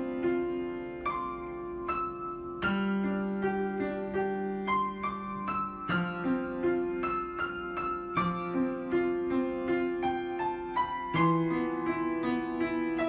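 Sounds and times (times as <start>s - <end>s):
soft piano music: 0.0s - 13.0s.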